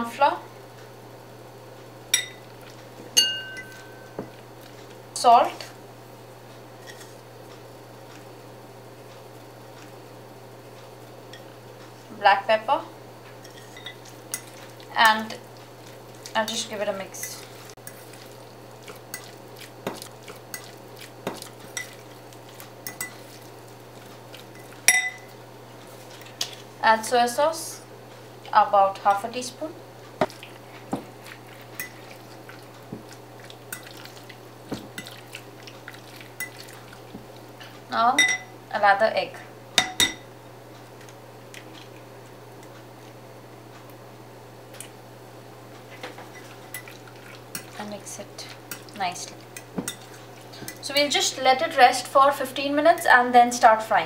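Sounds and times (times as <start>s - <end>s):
wet stirring by hand: 2.2s - 5.2s, 13.3s - 26.8s, 29.9s - 38.4s, 45.8s - 51.5s
sharp glass clink: 3.2s - 4.2s, 24.9s - 25.3s.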